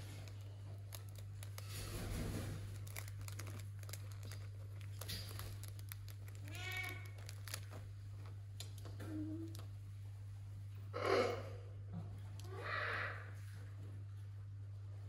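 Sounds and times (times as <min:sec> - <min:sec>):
parrot rustling on rope toy: 0:00.0 - 0:06.3.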